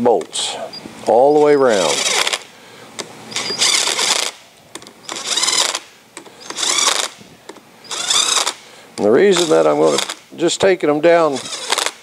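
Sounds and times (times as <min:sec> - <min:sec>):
drill motor spurts: 0:00.6 - 0:02.5, 0:03.3 - 0:04.4, 0:05.0 - 0:07.2, 0:07.8 - 0:10.2, 0:11.2 - 0:12.0.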